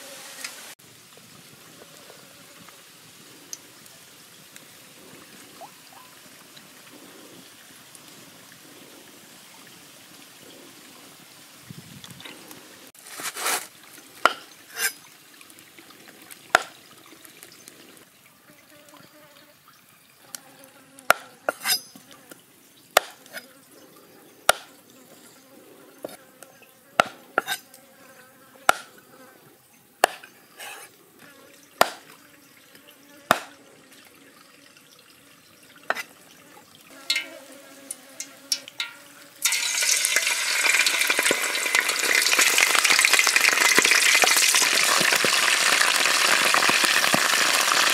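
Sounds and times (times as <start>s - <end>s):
deep frying sizzle: 38.5s - 47.9s.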